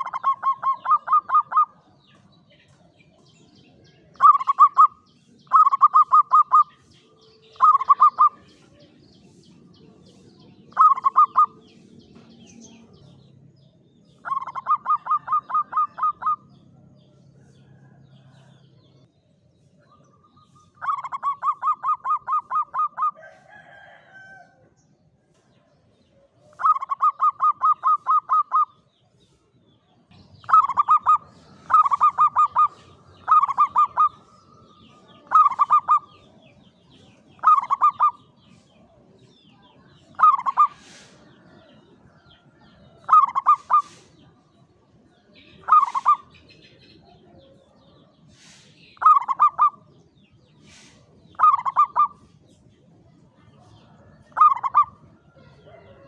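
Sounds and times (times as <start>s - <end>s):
dove cooing: 0.0s - 1.8s, 4.1s - 6.7s, 7.4s - 8.4s, 10.7s - 11.6s, 14.2s - 16.5s, 20.8s - 23.3s, 26.4s - 28.8s, 30.4s - 36.4s, 37.4s - 38.2s, 40.1s - 41.2s, 43.0s - 44.1s, 45.6s - 46.3s, 48.4s - 49.9s, 50.7s - 52.2s, 54.3s - 56.0s.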